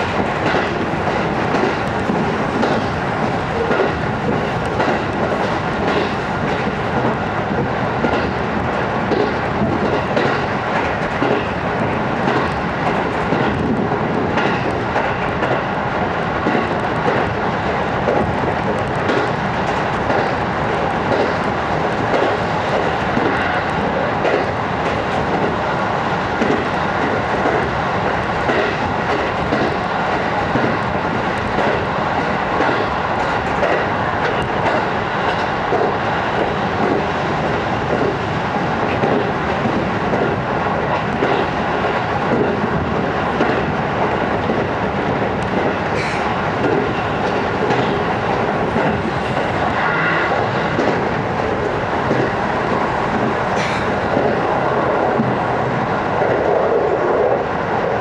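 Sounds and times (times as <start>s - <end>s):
wheels clicking over rail joints: 0.0s - 15.7s, 38.8s - 49.5s
train rolling rumble: 0.0s - 58.0s.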